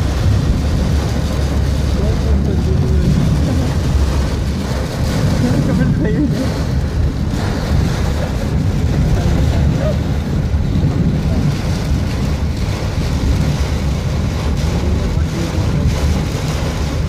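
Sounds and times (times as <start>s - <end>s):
heavy rain hissing: 0.0s - 17.0s
vehicle and tyres rumbling: 0.0s - 17.0s.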